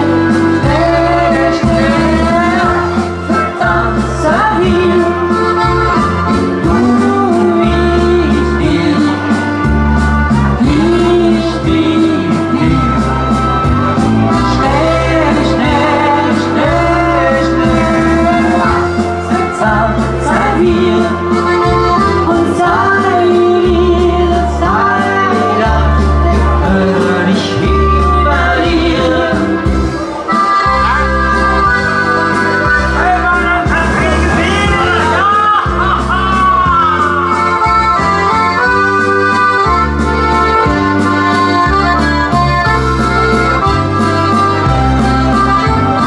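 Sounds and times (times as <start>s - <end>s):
accordion: 0.0s - 46.0s
bass line: 0.0s - 46.0s
keyboard: 0.0s - 46.0s
woman singing: 0.5s - 5.4s, 6.6s - 9.3s, 10.6s - 13.2s, 14.5s - 21.4s, 22.0s - 30.0s.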